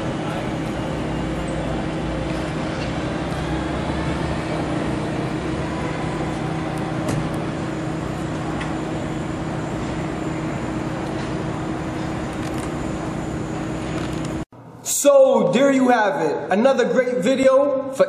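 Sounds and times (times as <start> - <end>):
street traffic noise: 0.0 - 14.4.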